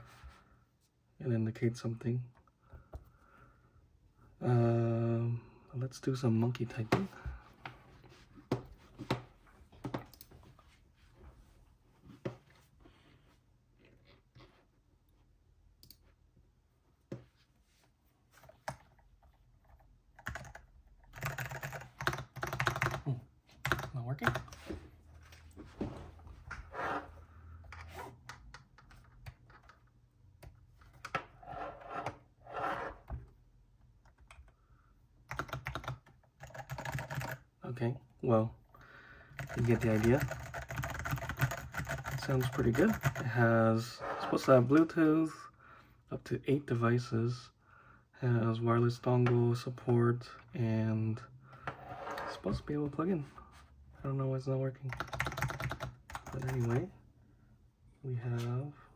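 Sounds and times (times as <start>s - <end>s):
typing on mechanical keyboard: 19.6s - 24.6s, 35.3s - 37.4s, 39.4s - 43.2s, 54.9s - 56.8s.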